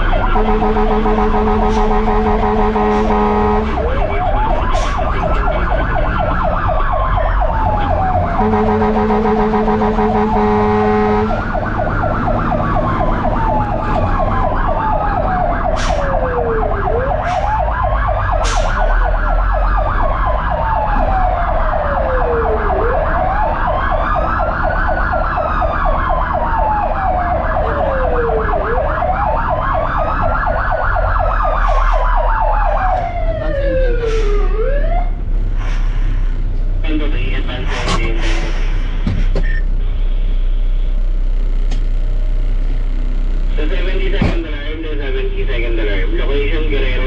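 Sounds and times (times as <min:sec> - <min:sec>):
wailing siren: 0:00.0 - 0:35.2
warbling siren: 0:00.0 - 0:35.2
truck engine rumbling: 0:00.0 - 0:47.0.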